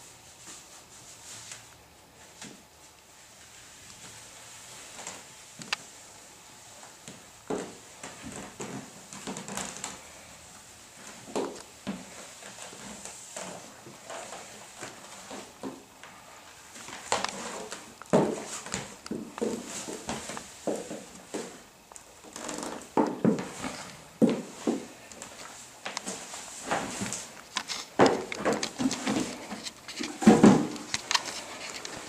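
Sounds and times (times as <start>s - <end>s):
boot footsteps on wooden floor: 18.1s - 21.6s, 22.4s - 25.0s.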